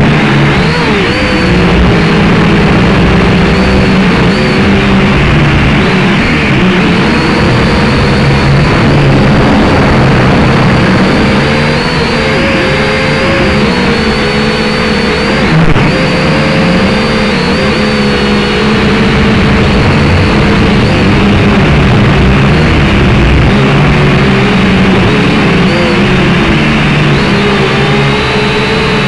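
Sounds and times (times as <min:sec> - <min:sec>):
drone propellers whining: 0:00.0 - 0:29.0.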